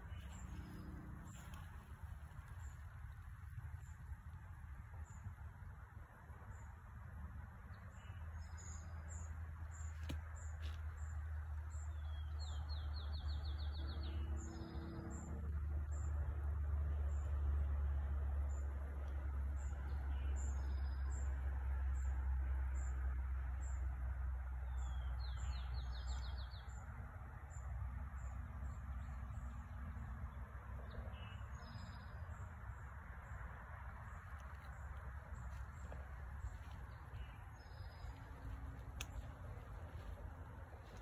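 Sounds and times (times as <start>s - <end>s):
low rumble: 0.0s - 6.4s, 28.3s - 41.0s.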